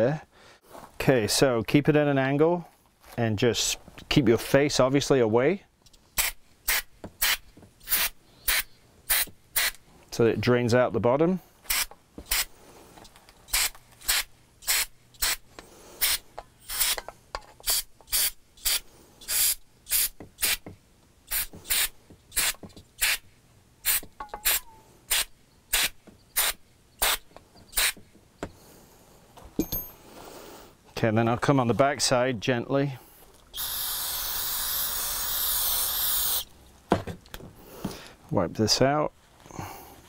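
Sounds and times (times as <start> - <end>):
aerosol spray can hissing bursts: 6.2 - 9.8, 13.5 - 15.4, 16.0 - 17.0, 17.7 - 20.6, 21.3 - 23.2, 27.8 - 28.0, 33.6 - 36.5.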